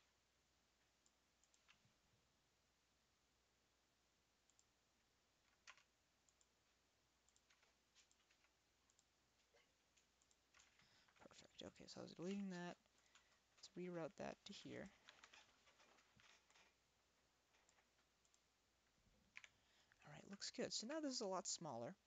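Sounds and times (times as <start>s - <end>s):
faint room hiss: 0.0s - 22.0s
mouse and keyboard clicks: 5.5s - 6.5s.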